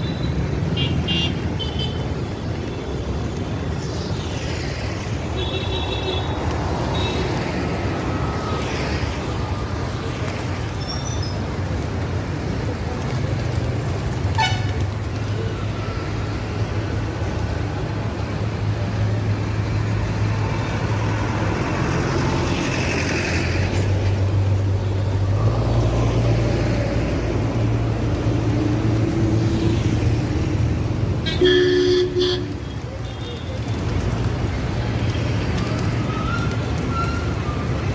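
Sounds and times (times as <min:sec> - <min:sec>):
hum of passing traffic: 0:00.0 - 0:37.9
vehicle horn tooting: 0:31.3 - 0:32.5.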